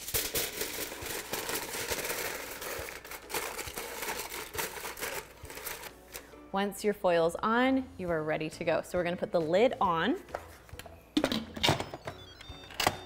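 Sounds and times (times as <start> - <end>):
aluminium foil crinkling: 0.0 - 6.4.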